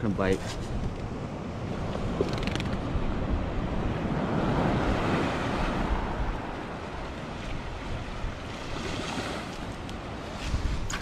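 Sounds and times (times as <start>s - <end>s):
ocean surf washing in: 2.8s - 10.9s.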